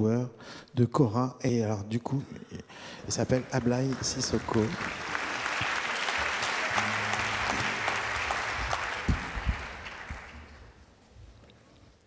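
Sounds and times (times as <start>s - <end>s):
audience applauding: 3.0s - 10.9s
low thuds: 8.6s - 10.3s.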